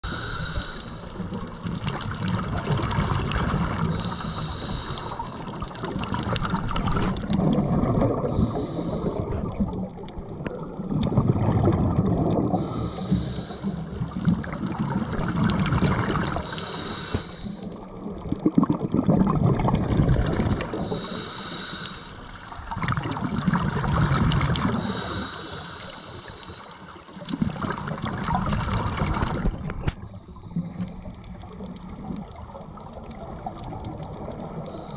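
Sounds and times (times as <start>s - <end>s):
regulator inhale hiss: 0.0s - 1.4s, 3.9s - 5.6s, 8.2s - 9.4s, 12.6s - 14.1s, 16.3s - 17.8s, 20.8s - 22.4s, 24.8s - 27.0s, 34.6s - 34.9s
exhaled air bubbling: 0.0s - 34.9s.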